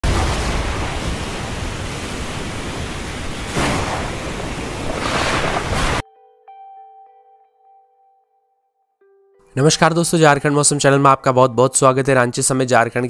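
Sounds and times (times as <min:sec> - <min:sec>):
wind and rain: 0:00.0 - 0:06.0.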